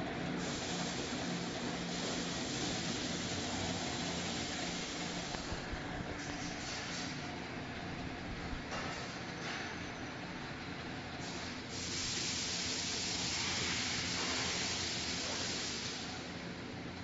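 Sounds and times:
machine humming: 0.0s - 15.2s
loud even hiss: 11.2s - 16.2s.

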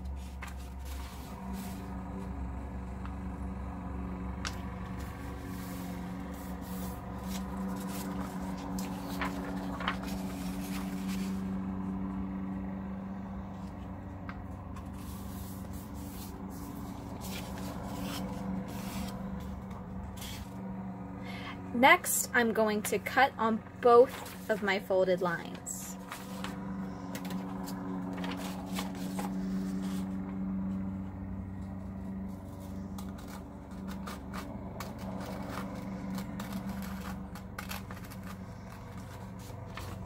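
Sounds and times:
paper being folded and creased: 0.0s - 2.3s, 4.4s - 12.2s, 13.6s - 20.7s, 24.0s - 24.9s, 25.5s - 30.8s, 32.1s - 40.0s
steady low hum: 0.0s - 40.0s.

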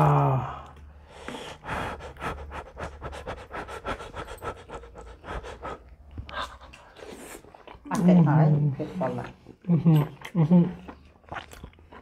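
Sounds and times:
chewing: 4.2s - 8.2s, 9.2s - 12.0s.

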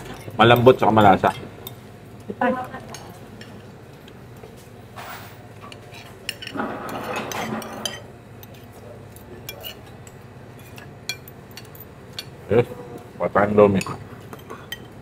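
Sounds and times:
cutlery clinking on plates: 5.0s - 12.4s.

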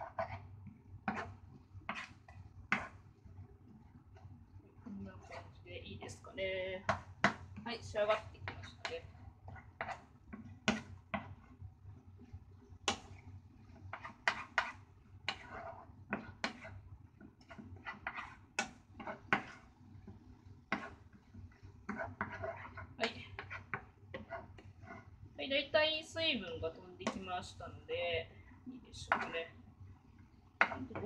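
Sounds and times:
wooden spatula scraping frying pan: 0.0s - 3.1s, 5.1s - 6.2s, 6.8s - 11.6s, 12.2s - 25.2s, 29.0s - 29.5s, 30.6s - 31.0s.

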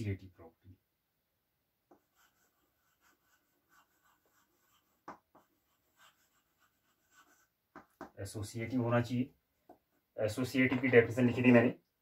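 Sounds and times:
chalk writing on blackboard: 1.9s - 8.2s.

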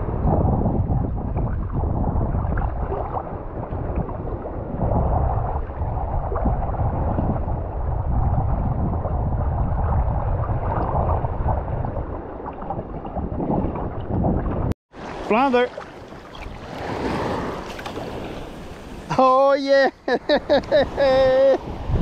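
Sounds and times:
wind buffeting microphone: 0.0s - 15.2s, 15.8s - 19.2s, 19.9s - 22.0s
water sloshing and gurgling: 0.0s - 19.1s.

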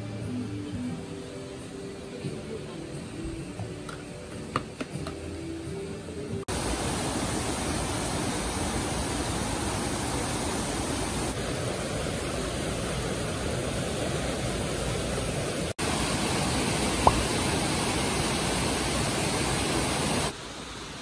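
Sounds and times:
waterfall rushing: 6.5s - 21.0s.

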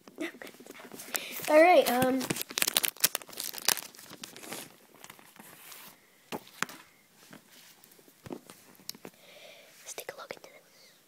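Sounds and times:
soft handling knocks and rustles: 5.0s - 9.2s.

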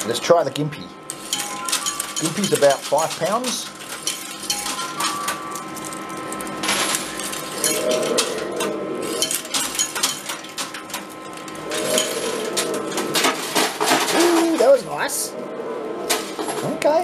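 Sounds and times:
coins clinking and clattering: 1.1s - 14.6s.

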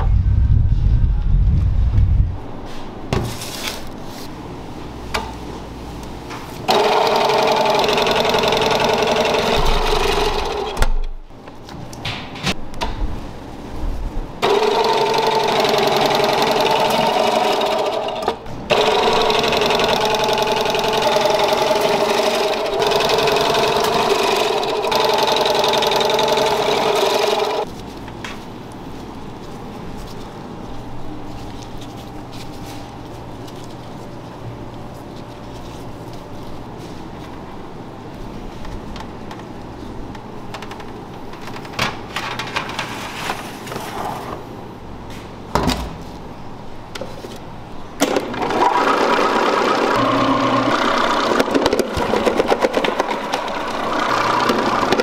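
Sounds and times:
food slicer motor whining: 6.7s - 10.8s, 14.4s - 27.7s, 48.0s - 55.0s.

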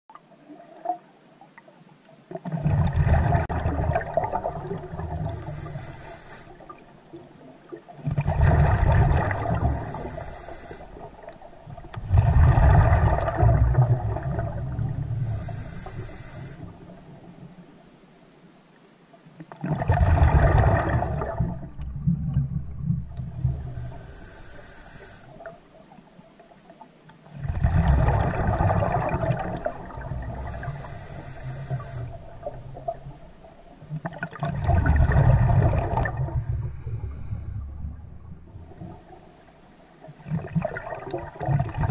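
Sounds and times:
exhaled bubbles gushing underwater: 2.3s - 5.8s, 6.6s - 17.4s, 19.5s - 24.0s, 27.2s - 41.9s
regulator inhaling hiss: 5.2s - 6.8s, 9.2s - 11.3s, 14.8s - 16.9s, 23.6s - 25.5s, 30.2s - 32.4s, 36.3s - 37.9s.

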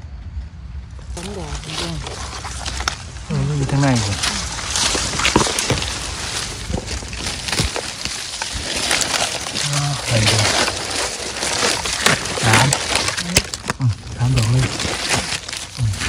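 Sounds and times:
leaves and twigs rustling: 0.9s - 16.0s
low voice murmurs: 15.7s - 16.0s.

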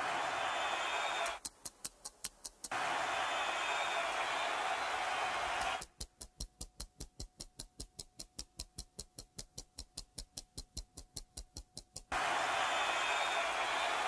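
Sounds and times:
rapid even clicking: 5.8s - 12.1s.

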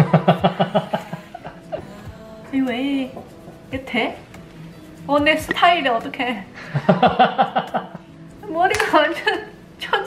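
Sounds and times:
person laughing: 0.0s - 1.9s, 6.6s - 8.0s
background music: 0.0s - 10.0s.

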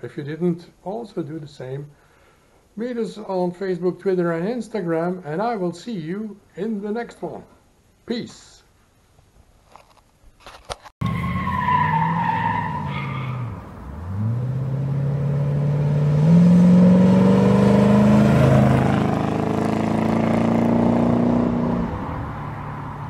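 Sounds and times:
car engine driving past: 13.2s - 23.0s.

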